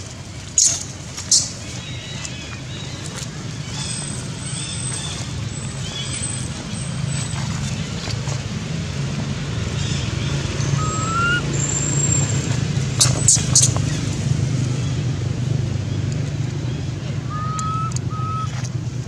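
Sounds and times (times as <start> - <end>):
vehicle engine humming: 0.0 - 19.0.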